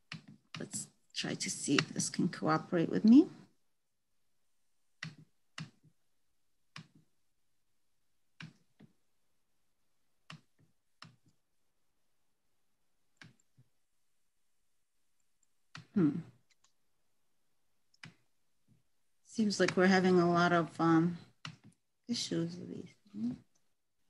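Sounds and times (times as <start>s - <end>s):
computer mouse clicks: 1.7s - 2.1s, 5.0s - 5.9s, 6.7s - 7.1s, 8.4s - 8.9s, 10.2s - 11.4s, 13.2s - 13.6s, 17.9s - 18.2s.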